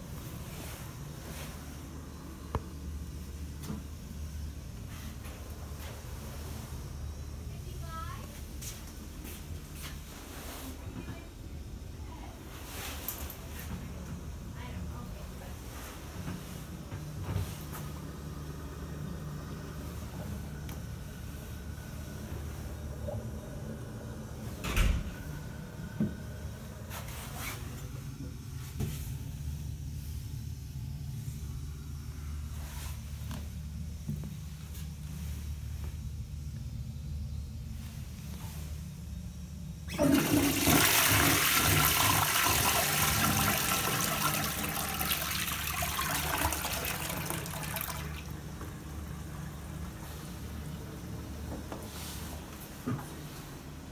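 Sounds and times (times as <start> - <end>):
steady low hum: 0.0 - 53.9
cistern refilling hiss: 39.7 - 52.6
toilet flush water rushing: 39.9 - 50.9.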